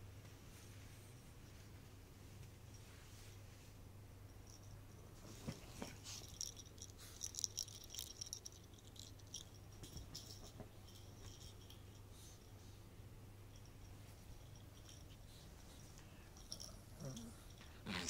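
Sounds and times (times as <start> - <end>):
toy ball rattle jingling: 6.0 - 12.4, 13.5 - 18.0.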